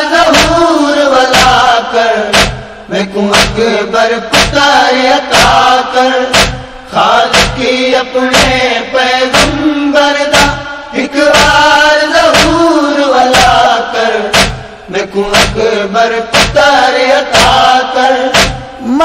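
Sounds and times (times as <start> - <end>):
voices chanting a lament: 0.0 - 19.0
steady beat: 0.3 - 0.7, 1.3 - 1.7, 2.3 - 3.7, 4.3 - 8.7, 9.3 - 9.7, 10.3 - 10.6, 11.3 - 11.7, 12.3 - 18.8.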